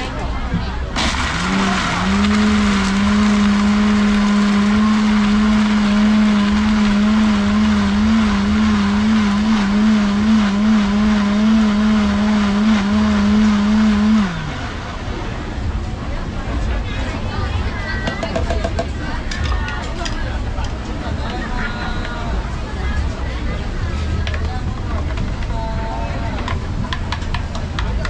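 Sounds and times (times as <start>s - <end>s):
blender motor running: 1.0s - 15.0s.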